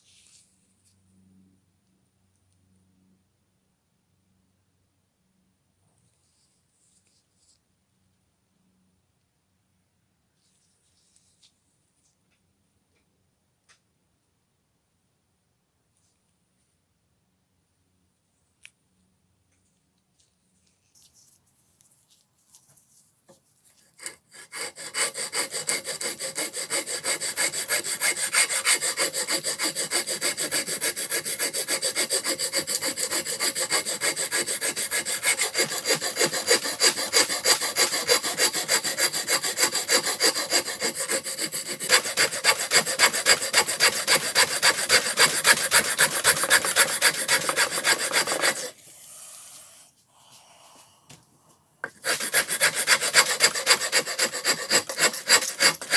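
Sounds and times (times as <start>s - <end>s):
rasp rasping wood: 24.0s - 48.8s, 51.8s - 55.9s.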